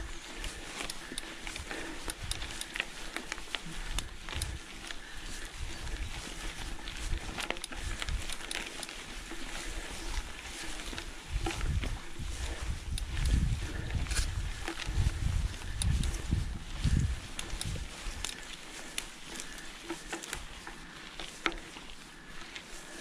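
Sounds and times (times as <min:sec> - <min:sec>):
bike clicks and rattles: 0:00.0 - 0:23.0
bike tyres rolling on grass: 0:00.0 - 0:23.0.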